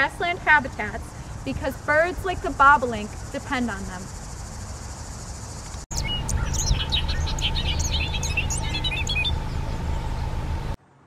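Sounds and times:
bird singing: 0.1 - 10.8
insect-like hiss: 0.2 - 9.3
low steady rumble: 5.9 - 10.8.

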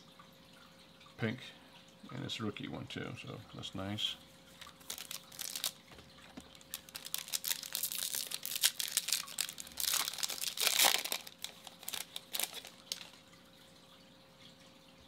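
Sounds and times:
foil wrapper tearing and crinkling: 4.6 - 5.8, 6.5 - 13.2.

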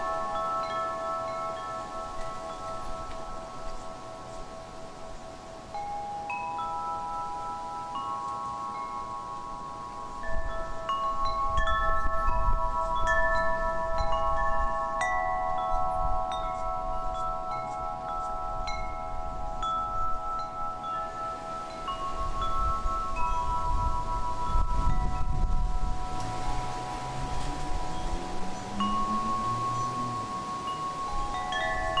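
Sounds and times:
chime tones ringing: 0.0 - 32.0
low uneven noise: 16.5 - 32.0.

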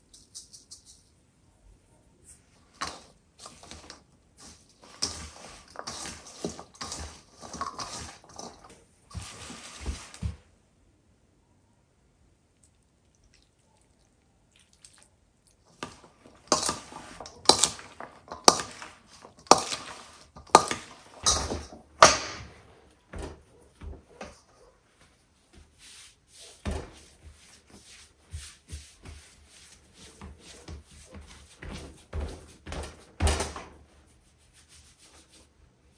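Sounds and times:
sharp kitchen knocks: 20.4 - 22.6.

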